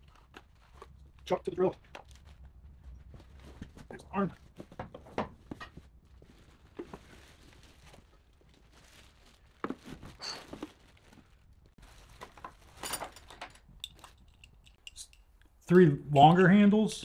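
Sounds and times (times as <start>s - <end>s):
plastic wrapping crinkling: 0.0s - 3.8s, 5.5s - 13.3s.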